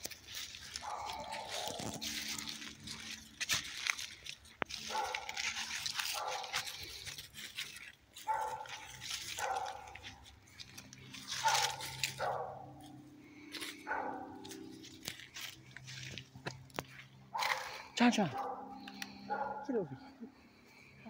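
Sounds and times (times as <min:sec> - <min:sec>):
footsteps crunching through dry leaves: 0:00.0 - 0:19.6
dog barking: 0:00.7 - 0:03.2, 0:04.7 - 0:06.8, 0:08.2 - 0:10.3, 0:11.1 - 0:12.9, 0:13.8 - 0:14.7, 0:17.3 - 0:20.1.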